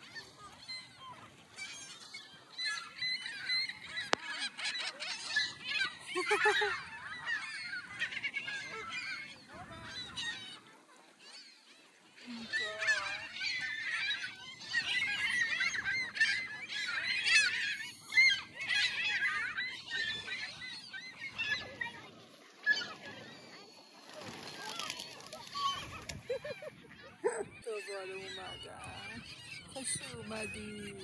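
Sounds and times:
flock of gulls calling: 0.0s - 31.0s.

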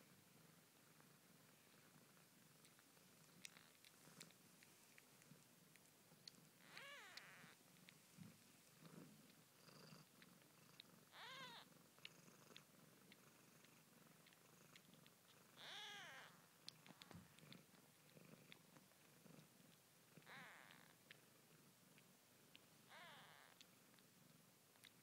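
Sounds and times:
low purr: 0.0s - 25.0s
kittens mewing: 6.6s - 7.6s, 11.1s - 11.6s, 15.6s - 17.2s, 22.9s - 23.6s.

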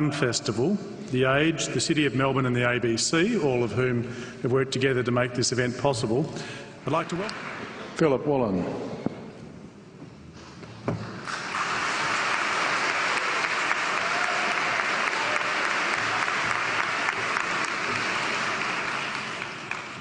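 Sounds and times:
audience applauding: 6.9s - 8.0s, 11.2s - 20.0s.

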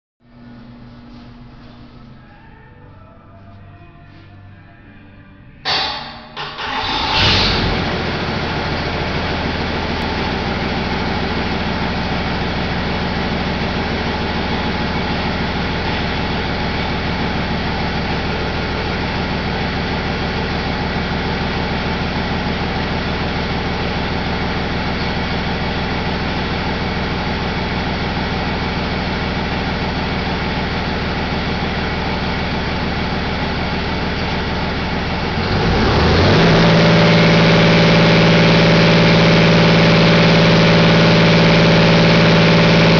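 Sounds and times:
diesel engine idling: 5.7s - 42.9s.

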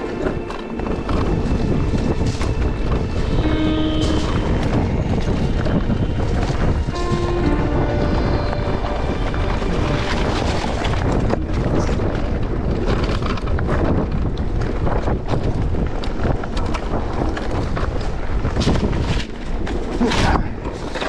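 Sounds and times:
bike clicking and rattling: 0.0s - 7.0s, 10.2s - 21.0s
wind buffeting microphone: 0.0s - 21.0s.

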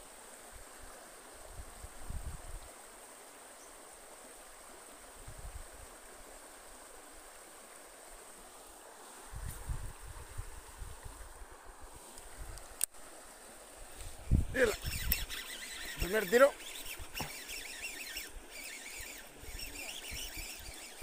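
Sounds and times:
flowing river water: 0.0s - 21.0s
wind bumps on microphone: 9.3s - 11.3s, 14.0s - 15.4s.

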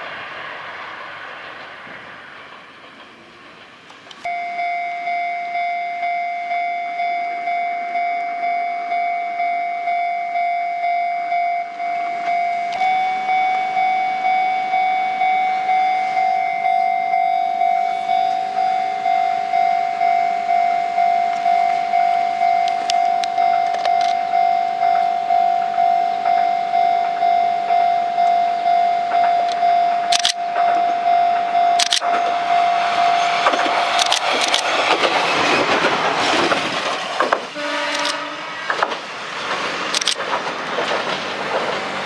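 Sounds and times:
level-crossing warning bell ringing: 4.2s - 35.0s.

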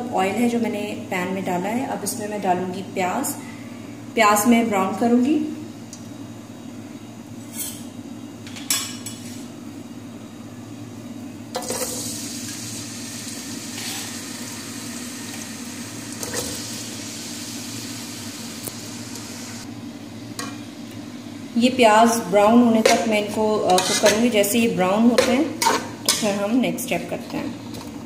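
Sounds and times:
onions sizzling in oil: 11.6s - 19.6s.

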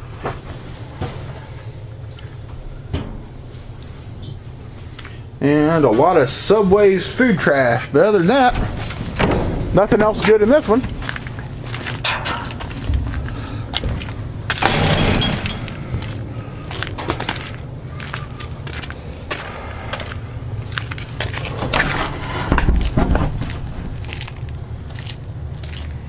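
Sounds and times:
trash rustling: 8.2s - 19.5s, 20.1s - 25.9s
trash clattering and knocking: 8.4s - 17.8s, 21.2s - 24.6s.

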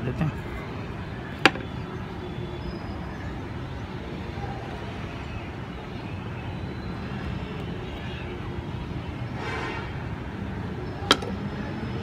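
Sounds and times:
sharp wooden tap: 1.4s - 1.7s, 11.1s - 11.3s.

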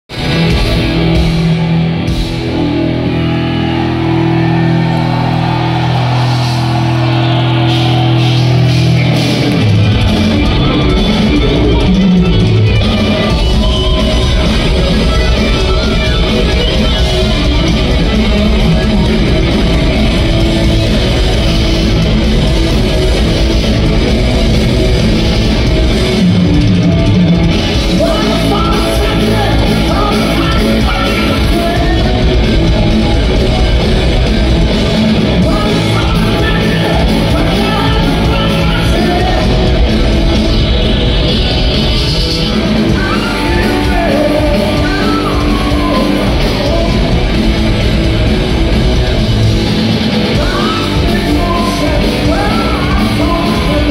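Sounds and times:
electric bass: 0.0s - 53.9s
drum kit: 0.1s - 53.9s
electric guitar: 0.1s - 53.9s
man singing lead vocal: 27.8s - 32.9s, 35.3s - 40.1s, 41.9s - 47.6s, 50.2s - 53.9s.

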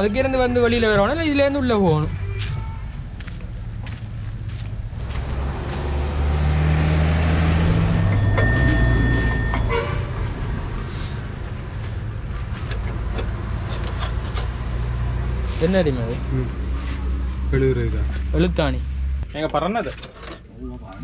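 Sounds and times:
vehicle engine passing: 3.8s - 19.2s
high horn-like tone: 7.6s - 10.4s.

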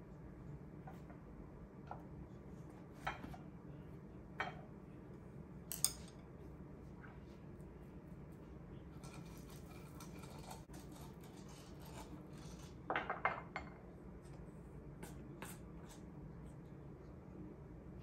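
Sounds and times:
steady low hum: 0.0s - 18.0s
utensils clinking against bowls: 5.7s - 6.2s.

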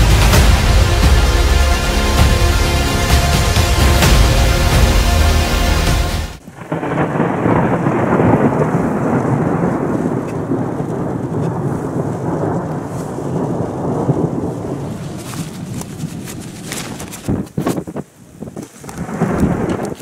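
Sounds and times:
background music: 0.0s - 6.4s
low rumble of thunder: 6.4s - 16.7s, 18.9s - 20.0s.

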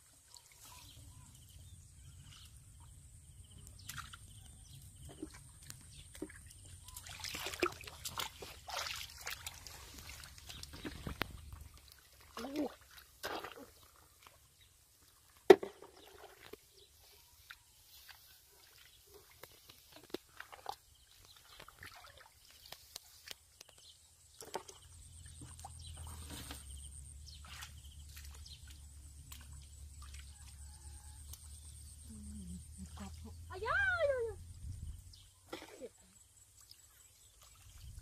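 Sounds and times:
splashes and squelches in mud: 0.0s - 3.0s, 3.6s - 32.0s, 35.4s - 38.0s.

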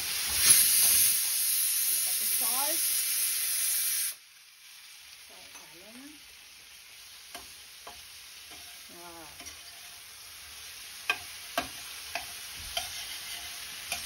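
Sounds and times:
vegetables sizzling in a frying pan: 0.0s - 14.0s
metal spatula clicking on pan: 11.0s - 13.0s.

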